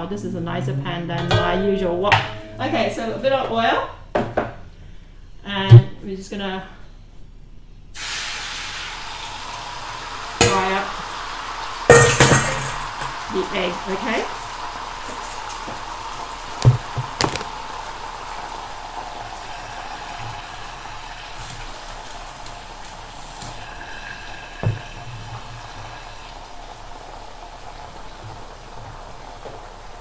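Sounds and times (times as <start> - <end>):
pan knocking on cooktop: 1.2 - 4.5, 10.4 - 10.8, 11.9 - 13.3, 16.6 - 17.5
egg sizzling in hot oil: 8.0 - 30.0.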